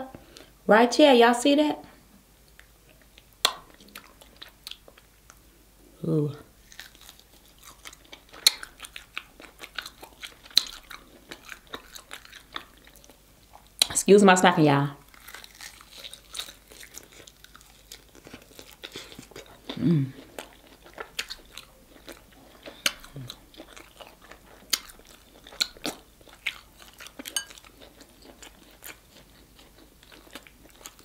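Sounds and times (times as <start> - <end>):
wet mouth clicks: 3.4 - 4.1, 22.7 - 23.3
chewing and biting: 6.6 - 13.8, 15.0 - 31.0.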